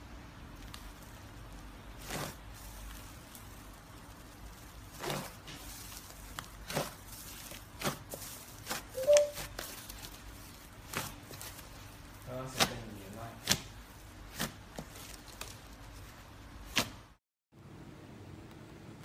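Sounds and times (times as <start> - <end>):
slime squishing: 0.4 - 17.0
brief squeak: 9.0 - 9.4.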